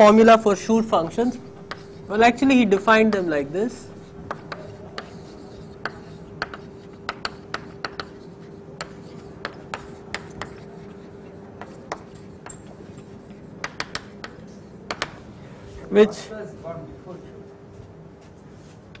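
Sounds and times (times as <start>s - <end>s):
faint steady hum: 0.0s - 19.0s
chalk tapping on blackboard: 1.0s - 15.2s.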